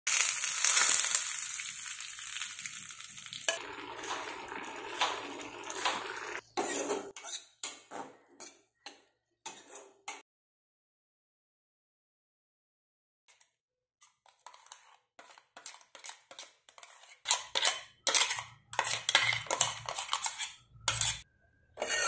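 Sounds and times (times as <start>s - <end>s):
hot oil sizzling: 0.0s - 6.4s
short bursts of cooking sound: 0.1s - 6.5s.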